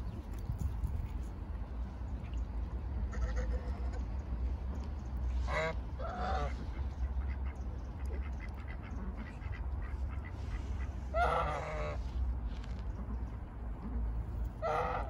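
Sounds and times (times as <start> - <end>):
goose honking: 3.1 - 4.0, 5.5 - 6.6, 9.3 - 12.0, 14.6 - 15.0.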